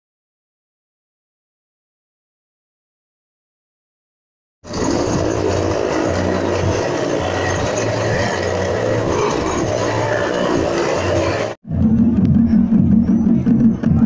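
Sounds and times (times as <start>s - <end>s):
motorcycle and car engines: 4.6s - 14.0s
tyres rumbling on wooden planks: 4.7s - 13.1s.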